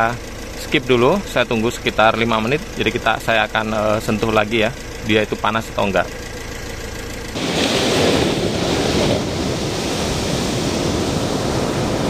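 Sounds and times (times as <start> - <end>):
car engine idling: 0.0 - 12.0
surf breaking on beach: 7.4 - 12.0.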